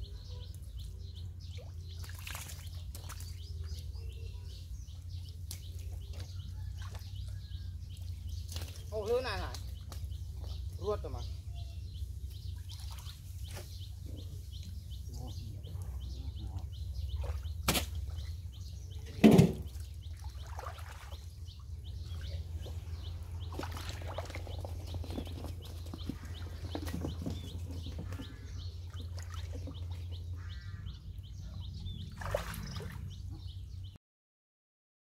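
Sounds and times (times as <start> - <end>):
birds chirping: 0.0 - 34.0
hands splashing in muddy water: 1.9 - 3.8, 7.9 - 10.5, 17.2 - 18.4, 19.3 - 21.3, 23.4 - 25.5, 32.1 - 33.1
loud thump: 19.2 - 19.7.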